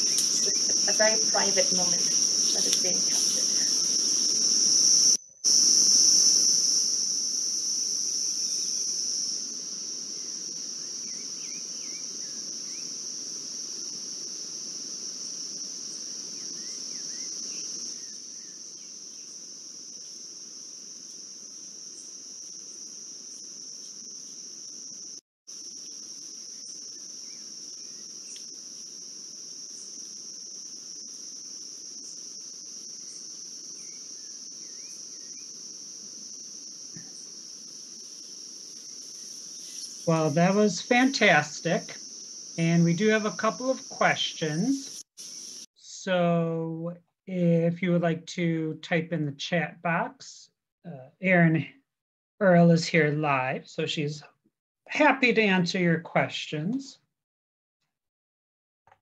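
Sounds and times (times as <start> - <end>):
high-pitched insect chorus: 0.0 - 45.7.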